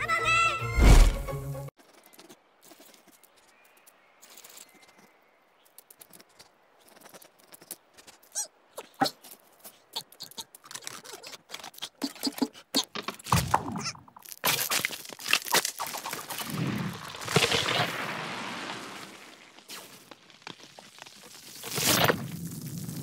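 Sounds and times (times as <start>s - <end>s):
cartoon squirrel scrabbling: 6.1s - 13.2s.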